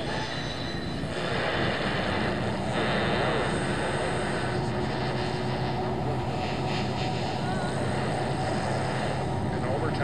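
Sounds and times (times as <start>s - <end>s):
truck engine drone: 0.0s - 10.0s.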